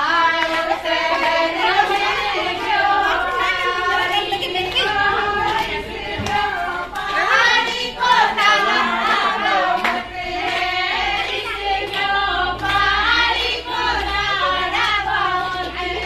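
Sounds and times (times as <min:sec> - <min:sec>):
hand-clapping: 0:00.0 - 0:16.0
women singing together: 0:00.0 - 0:16.0.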